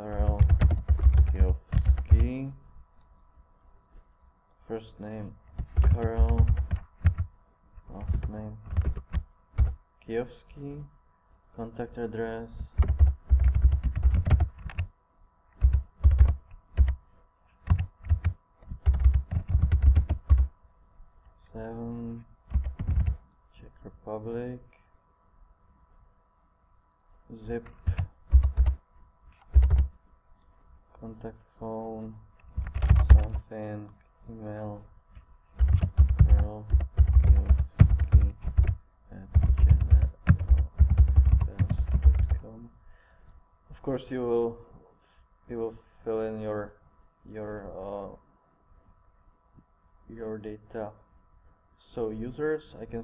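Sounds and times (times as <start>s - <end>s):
typing on a keyboard: 0.1s - 2.3s, 5.5s - 7.3s, 8.0s - 9.8s, 12.8s - 14.9s, 15.6s - 17.0s, 17.6s - 20.5s, 22.5s - 23.2s, 27.6s - 28.8s, 29.4s - 29.9s, 32.5s - 33.6s, 35.6s - 42.4s.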